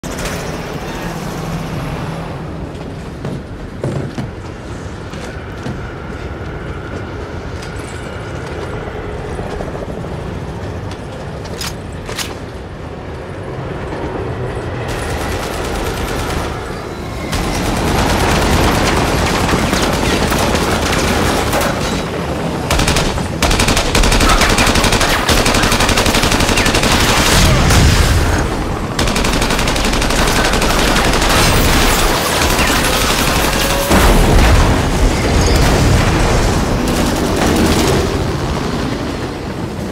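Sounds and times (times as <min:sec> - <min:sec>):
rapid automatic gunfire: 0:14.9 - 0:16.6, 0:17.3 - 0:21.8, 0:22.7 - 0:34.0.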